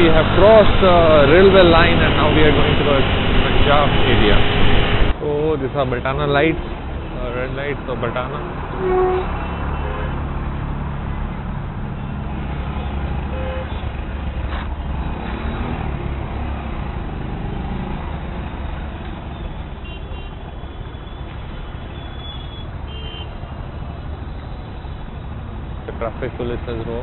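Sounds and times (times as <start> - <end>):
engine rumble in traffic: 0.0 - 27.0
car horn toots: 8.4 - 10.1, 19.8 - 20.4, 21.9 - 23.3.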